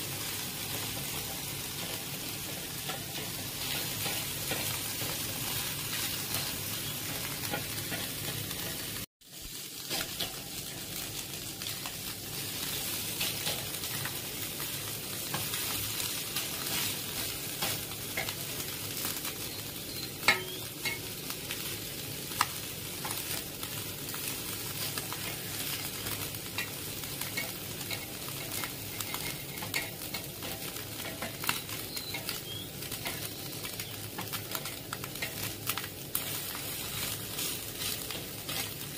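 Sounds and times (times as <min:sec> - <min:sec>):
fish sizzling in a pan: 0:00.0 - 0:38.9
spatula scraping and clicking on pan: 0:00.8 - 0:09.0, 0:09.8 - 0:10.9, 0:13.2 - 0:14.1, 0:16.4 - 0:18.4, 0:24.8 - 0:33.3, 0:34.1 - 0:38.9.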